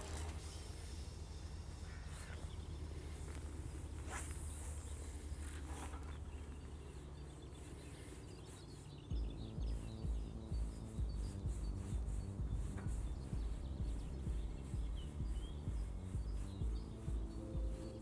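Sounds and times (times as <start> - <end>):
music with pulsing bass beat: 9.1 - 18.0
wind rumble on microphone: 9.1 - 18.0.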